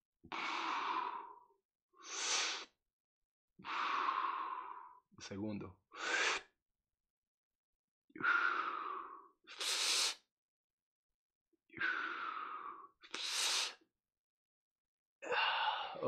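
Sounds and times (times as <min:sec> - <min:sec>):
man breathing deeply: 0:00.3 - 0:02.7, 0:03.6 - 0:05.0, 0:06.0 - 0:06.5, 0:08.2 - 0:10.2, 0:11.8 - 0:13.8, 0:15.2 - 0:16.0.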